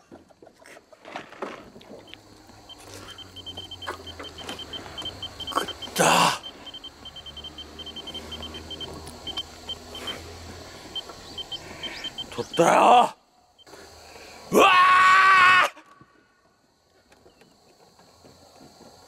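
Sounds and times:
high-pitched peeps: 2.0 - 12.9
steady low hum: 2.0 - 14.2.

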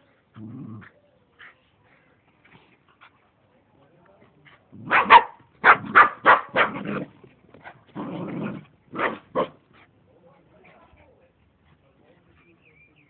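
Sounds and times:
dog barking: 4.8 - 6.8, 9.0 - 9.6.

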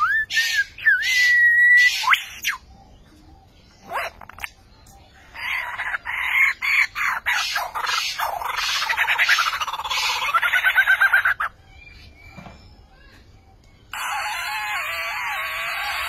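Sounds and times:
lyrebird singing: 0.0 - 16.0.

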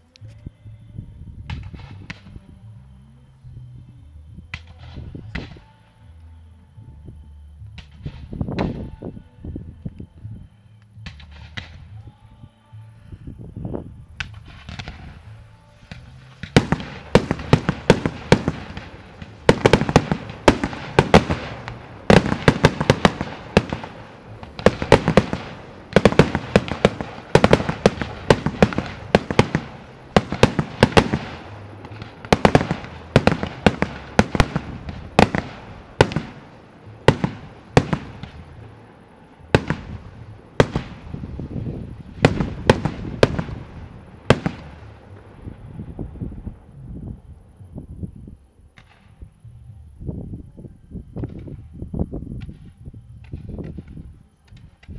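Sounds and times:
fireworks bangs and crackles: 1.4 - 2.6, 4.4 - 5.7, 7.7 - 9.0, 11.0 - 12.0, 14.2 - 47.4, 51.1 - 54.9.

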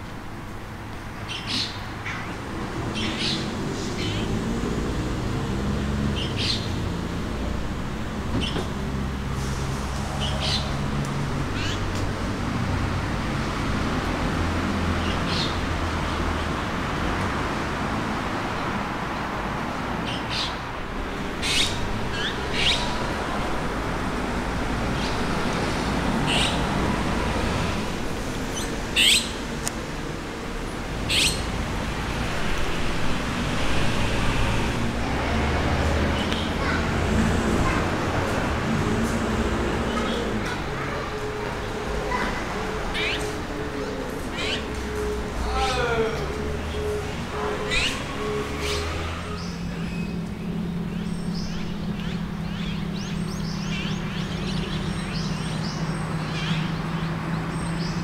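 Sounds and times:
road traffic rumble: 0.0 - 58.0
magpies calling: 1.2 - 4.4, 6.1 - 6.9, 11.4 - 11.9, 21.2 - 24.1, 24.7 - 27.6, 28.4 - 29.4, 31.0 - 31.6, 39.7 - 58.0.

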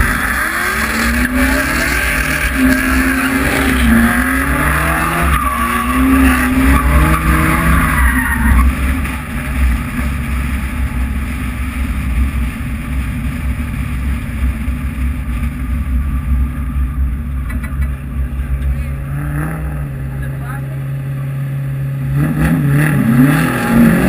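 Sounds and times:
tyre squeal: 0.0 - 9.0
car engine revving: 0.0 - 24.0
low rumble: 0.0 - 24.0.

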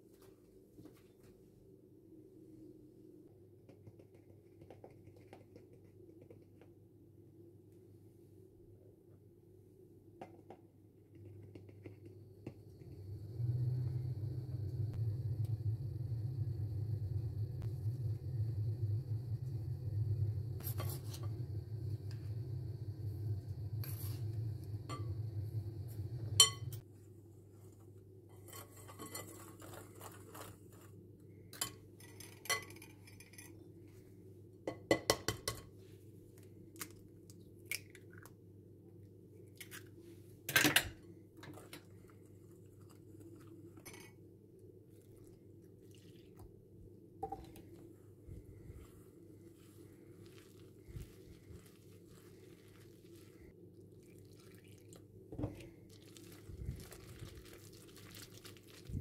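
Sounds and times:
steady low hum: 12.0 - 26.8, 46.6 - 54.0.

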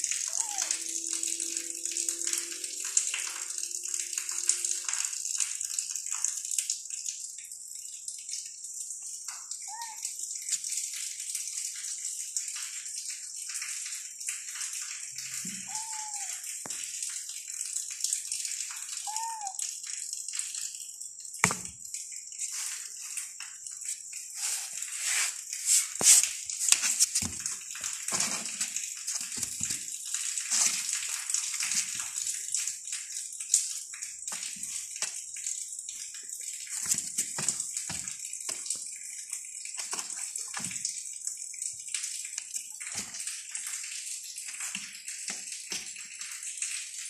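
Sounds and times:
sharp knocks: 21.4 - 21.7.

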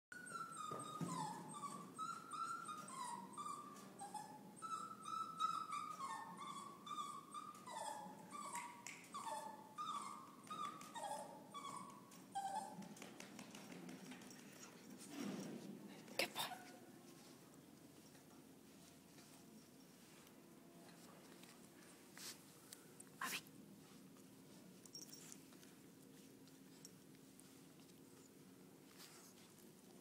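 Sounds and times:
small dog whining: 0.1 - 13.1.

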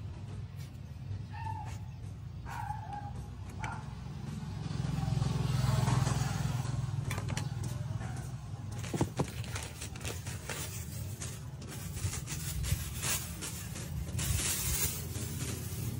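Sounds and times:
vehicle engine rumble: 0.0 - 15.9
plastic bag crackling: 8.7 - 15.9.

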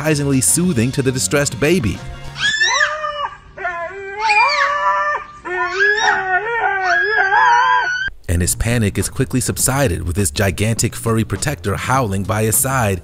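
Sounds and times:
husky howling: 2.4 - 8.1.

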